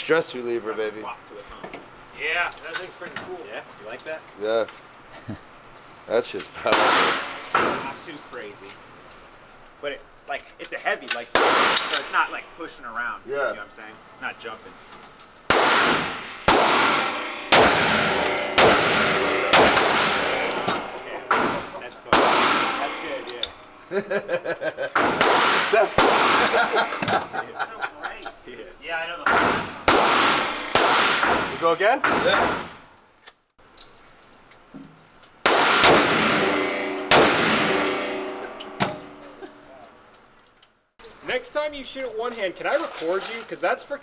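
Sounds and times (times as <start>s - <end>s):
handgun shots echoing indoors: 15.5s - 21.6s
pistol shots echoing indoors: 15.5s - 22.9s, 25.0s - 26.6s, 29.3s - 31.5s, 35.5s - 38.0s.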